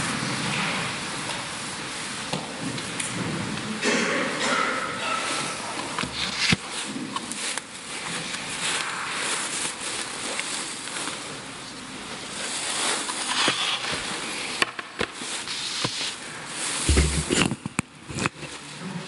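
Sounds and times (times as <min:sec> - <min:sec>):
book pages turning: 0:05.8 - 0:18.6
face mask rustling: 0:06.1 - 0:18.6
dull thump: 0:16.9 - 0:17.4.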